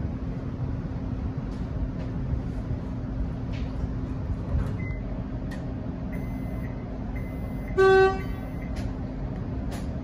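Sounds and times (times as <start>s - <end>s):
train horn toot: 7.8s - 8.4s.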